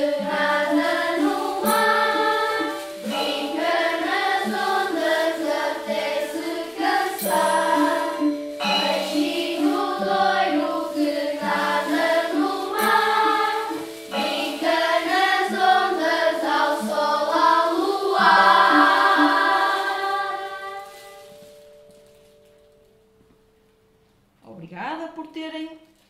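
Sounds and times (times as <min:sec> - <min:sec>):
children's choir singing: 0:00.0 - 0:21.6
xylophones and metallophones: 0:00.0 - 0:22.6.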